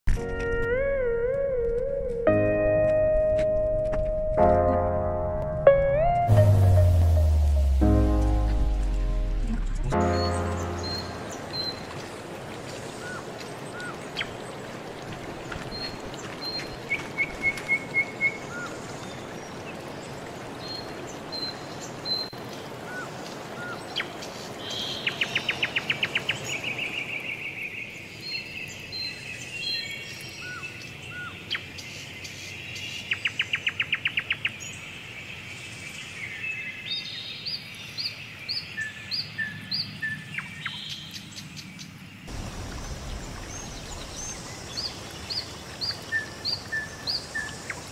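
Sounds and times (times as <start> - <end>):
low rushing noise: 5.6 - 12.6, 42.3 - 45.5.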